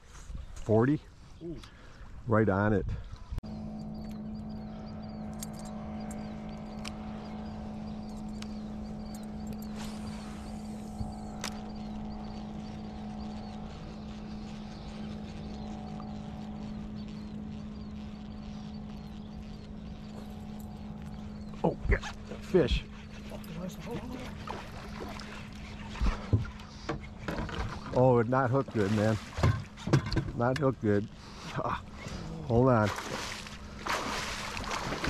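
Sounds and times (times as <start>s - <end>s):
electric motor humming: 3.4s - 29.1s
fishing line hissing off reel: 9.3s - 15.5s.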